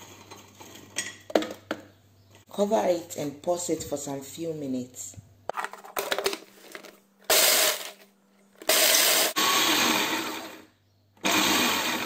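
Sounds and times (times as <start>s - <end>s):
food processor chopping cookies: 7.3s - 8.0s, 8.6s - 10.6s, 11.2s - 12.0s.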